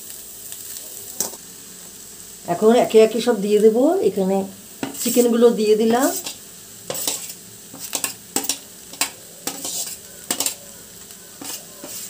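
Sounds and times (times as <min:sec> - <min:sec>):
faint steady hiss: 0:00.0 - 0:12.0
metal utensil scraping steel plate: 0:06.0 - 0:10.6, 0:11.4 - 0:12.0.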